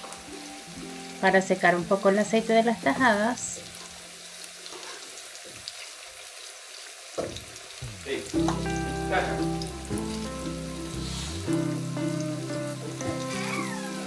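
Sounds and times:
background music: 0.0s - 4.2s, 7.8s - 14.0s
plantain slices sizzling in oil: 0.0s - 14.0s.

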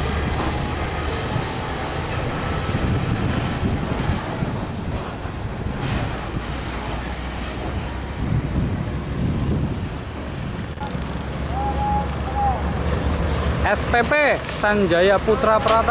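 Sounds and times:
diesel truck engine rumbling: 0.0s - 15.9s
high engine whine: 0.0s - 15.9s.

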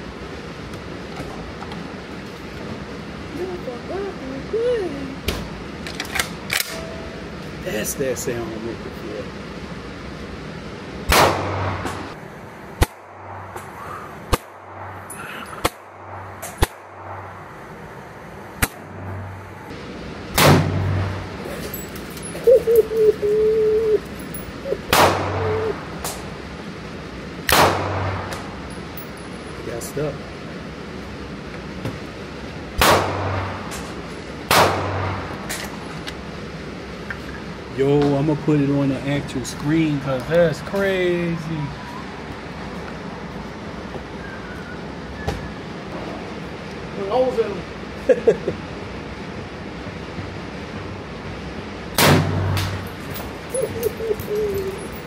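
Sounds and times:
sharper quieter gunshots: 11.1s - 12.1s, 20.3s - 21.3s, 24.9s - 25.6s, 27.5s - 28.4s, 32.8s - 33.7s, 34.5s - 35.3s, 52.0s - 52.8s.

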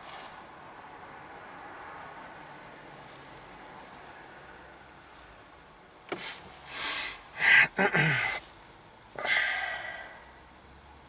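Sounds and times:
person sniffing and exhaling: 6.1s - 8.6s, 9.2s - 10.3s
person sighing: 6.8s - 8.4s, 9.2s - 10.3s.

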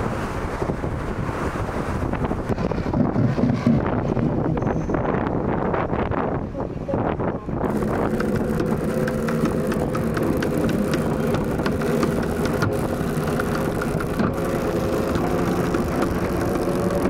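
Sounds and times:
engine humming: 2.2s - 4.8s, 7.6s - 17.0s.

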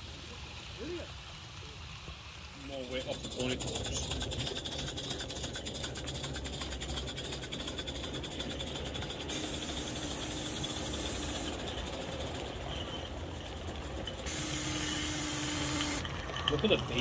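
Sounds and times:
steam locomotive chuffing: 0.0s - 17.0s
hiss of escaping steam: 8.6s - 13.1s, 14.2s - 16.1s.

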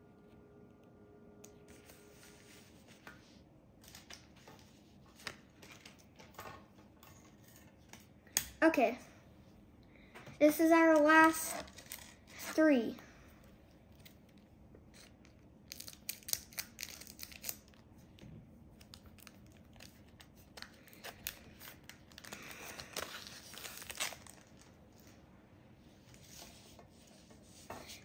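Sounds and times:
wrapper crinkling: 14.9s - 17.8s, 18.8s - 25.2s
scissors snipping foil: 15.7s - 17.8s.

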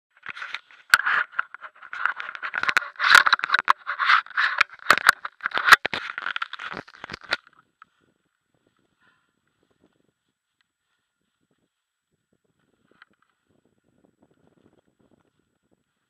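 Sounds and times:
scraping and rustling on camera: 0.1s - 13.6s
sharp clicks and knocks: 0.2s - 7.6s.

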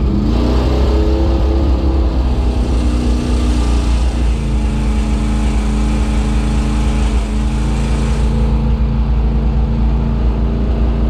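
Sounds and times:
truck engine rumbling: 0.0s - 11.0s.

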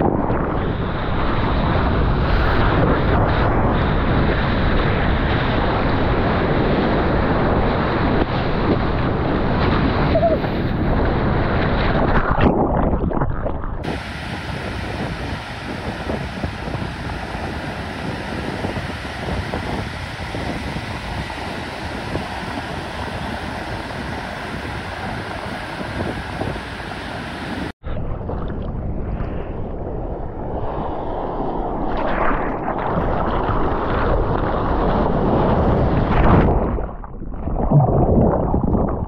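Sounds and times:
wind on microphone: 0.0s - 39.0s
distant surf breaking: 0.6s - 12.1s, 13.8s - 27.8s
whitewater rushing and spraying: 13.8s - 27.8s.

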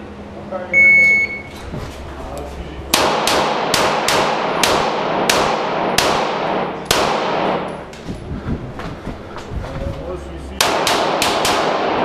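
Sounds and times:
handgun shots echoing: 2.9s - 7.8s, 10.6s - 12.0s.

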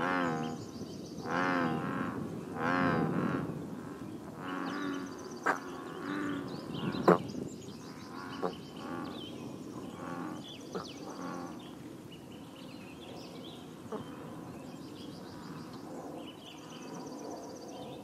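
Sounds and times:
bullfrogs croaking: 0.0s - 11.8s.

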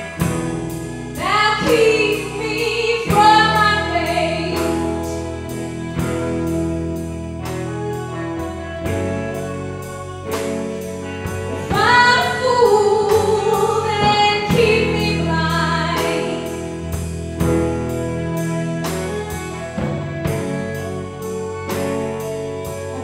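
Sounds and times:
live band playing: 0.0s - 23.0s
woman singing into microphone: 1.2s - 5.2s, 11.6s - 16.5s.

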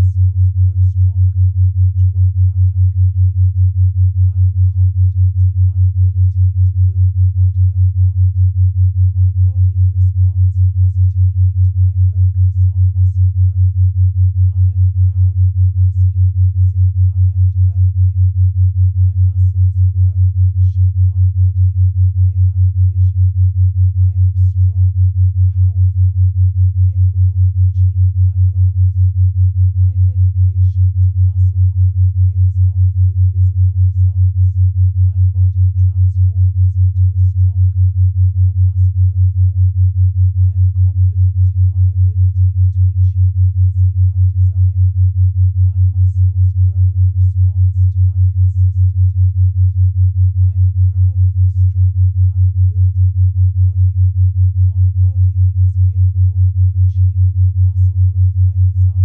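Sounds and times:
pulsing low pure tone: 0.0s - 59.0s.

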